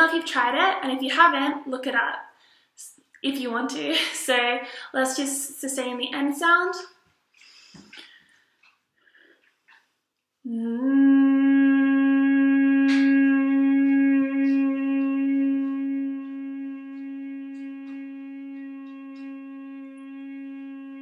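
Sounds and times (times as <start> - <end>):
woman humming a sustained note: 10.5 - 21.0.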